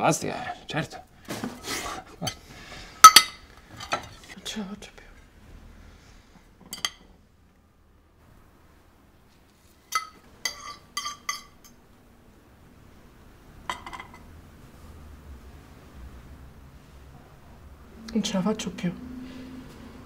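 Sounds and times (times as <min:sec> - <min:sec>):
plates and cutlery clinking: 0:03.0 - 0:04.3, 0:06.6 - 0:07.2, 0:09.9 - 0:11.8, 0:13.7 - 0:14.3.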